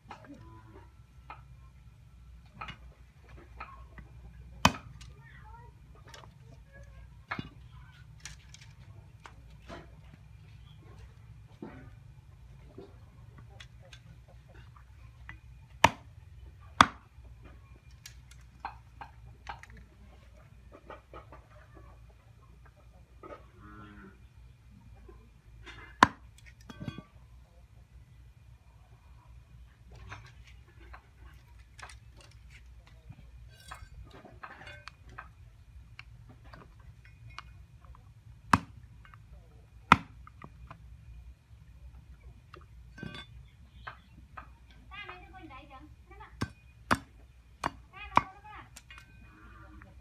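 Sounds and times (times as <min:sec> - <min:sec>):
machete chopping wooden block: 0:04.6 - 0:05.1, 0:15.8 - 0:16.1, 0:16.8 - 0:17.1, 0:26.0 - 0:26.2, 0:38.5 - 0:38.8, 0:39.9 - 0:40.4, 0:46.4 - 0:48.3.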